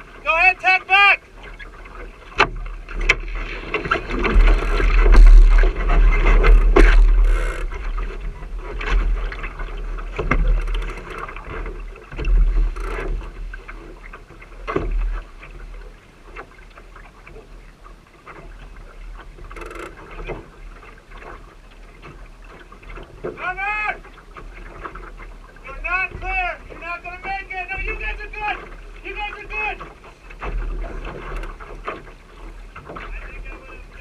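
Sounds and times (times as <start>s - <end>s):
water washing along hull: 0.0s - 34.0s
knocks and clicks of boat fittings: 1.5s - 17.5s, 18.3s - 23.5s, 29.6s - 33.6s
wind rumbling on microphone: 2.9s - 13.6s.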